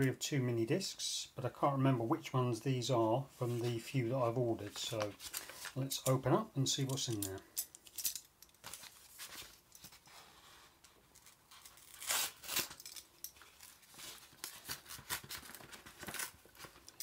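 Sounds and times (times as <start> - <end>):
paper tearing and crinkling: 11.2 - 16.9.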